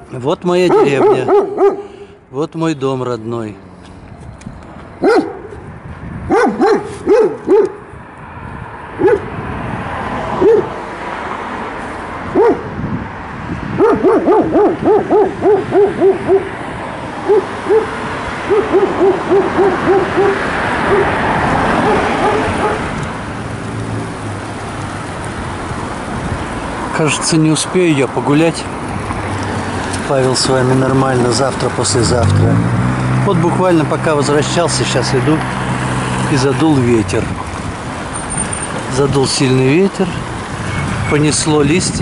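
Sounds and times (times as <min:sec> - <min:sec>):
dog barking: 0:00.7 - 0:02.1, 0:05.0 - 0:05.6, 0:06.3 - 0:07.9, 0:09.0 - 0:09.3, 0:10.4 - 0:10.8, 0:12.3 - 0:12.7, 0:13.8 - 0:16.6, 0:17.2 - 0:21.2, 0:21.8 - 0:22.9
wind noise: 0:03.9 - 0:26.9, 0:40.2 - 0:42.0.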